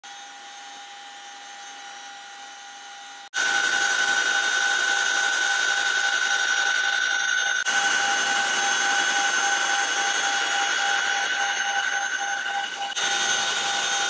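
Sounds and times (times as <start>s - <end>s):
helicopter engine whine: 3.4s - 14.0s.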